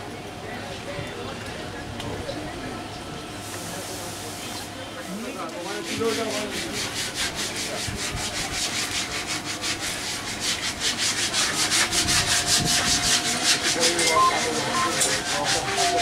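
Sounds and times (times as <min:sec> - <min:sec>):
rhythmic rubbing strokes: 0:06.1 - 0:16.0.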